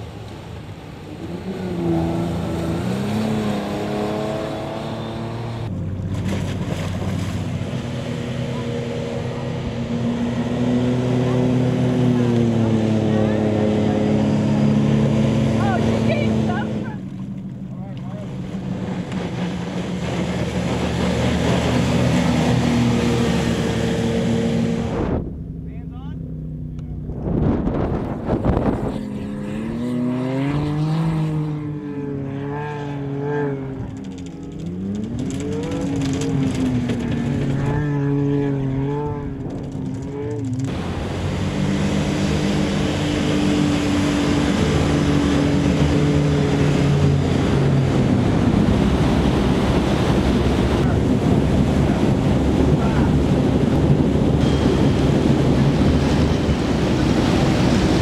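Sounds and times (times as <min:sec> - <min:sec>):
water rushing and spray: 0:00.0 - 0:17.1, 0:18.1 - 0:25.2, 0:40.6 - 0:58.0
engine running hard: 0:00.0 - 0:58.0
wind: 0:00.0 - 0:58.0.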